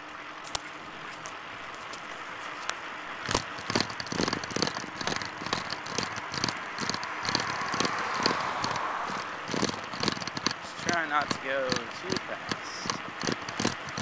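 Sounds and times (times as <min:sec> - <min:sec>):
wind and tyre noise: 0:00.0 - 0:14.0
bicycle rattling: 0:00.7 - 0:14.0
clicks and knocks: 0:03.2 - 0:14.0.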